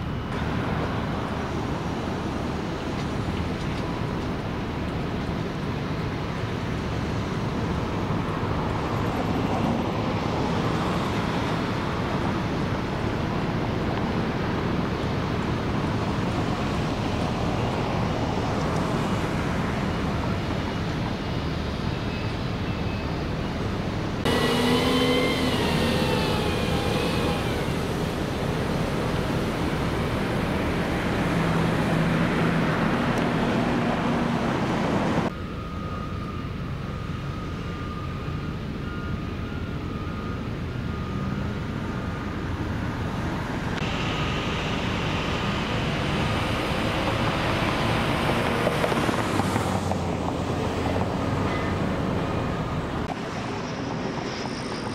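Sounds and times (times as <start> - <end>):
construction site noise: 0.0 - 54.9
road traffic: 0.0 - 54.9
truck engine hum wavering: 0.0 - 54.9.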